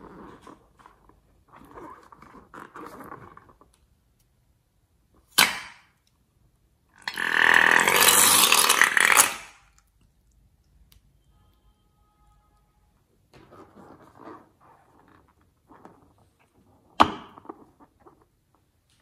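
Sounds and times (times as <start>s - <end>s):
rubber balloon squeaking: 7.1s - 9.6s.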